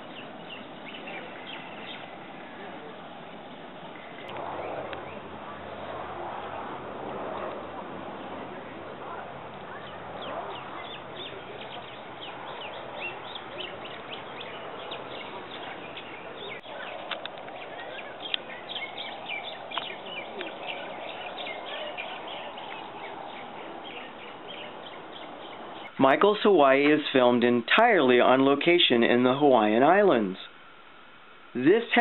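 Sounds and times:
birds chirping: 0.0 - 28.4
outdoor hiss: 13.5 - 32.0.

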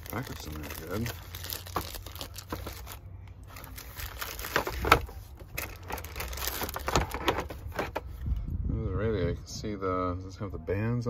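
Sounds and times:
plastic bags crinkling: 0.0 - 8.0.

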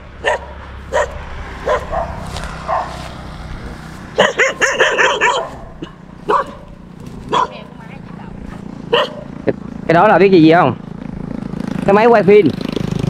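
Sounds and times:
dog barking: 0.2 - 3.1, 4.2 - 7.7, 8.8 - 9.4.

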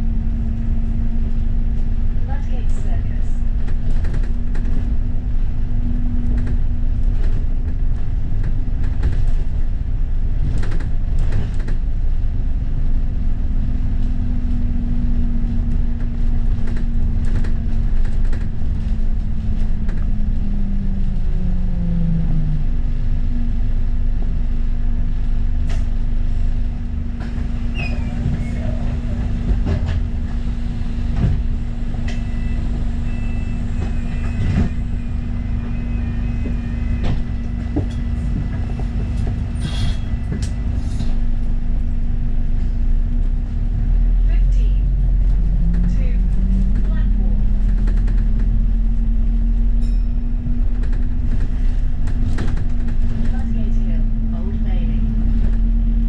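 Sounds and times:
bus drivetrain drone: 0.0 - 56.0
low road rumble: 0.0 - 56.0
rattles and knocks from bus body: 3.5 - 12.4, 13.5 - 20.6, 27.0 - 35.2, 36.4 - 41.3, 45.0 - 54.2, 55.0 - 56.0.

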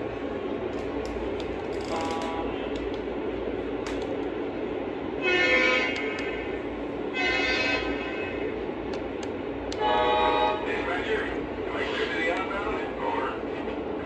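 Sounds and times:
model trains rolling on track: 0.0 - 14.0
electronic diesel horn blasts: 1.9 - 2.7, 5.2 - 8.4, 9.8 - 10.7.

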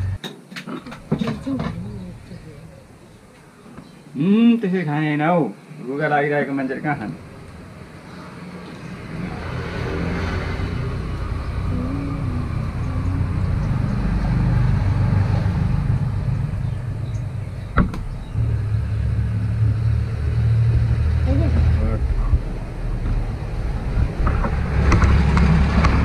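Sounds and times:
low engine rumble: 0.0 - 0.2, 0.9 - 4.1, 6.5 - 26.0.

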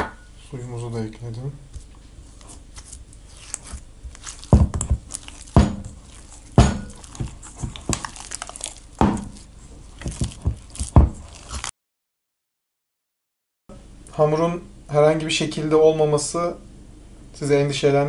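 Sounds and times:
hands squelching wet dough: 1.7 - 11.7
dough thumping against metal bowl: 4.4 - 8.3, 9.0 - 9.4.

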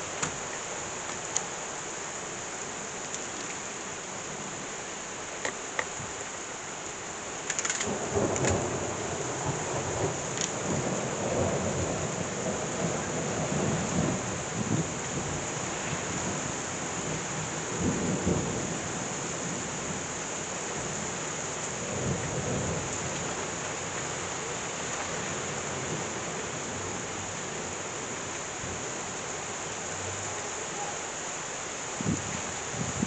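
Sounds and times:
heavy rain pouring: 0.0 - 33.0
thunder rumbling: 7.8 - 18.9.

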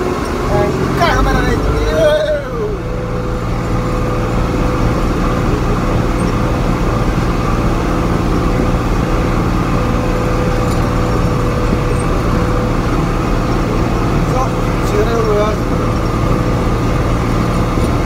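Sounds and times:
diesel engine droning: 0.0 - 18.0.

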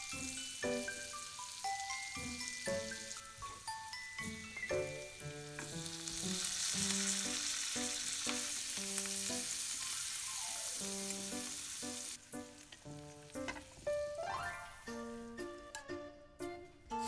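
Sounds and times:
light music with mallet notes: 0.0 - 5.8, 12.3 - 17.0
vegetables sizzling in a frying pan: 0.0 - 15.4
chopsticks stirring: 1.8 - 15.8.

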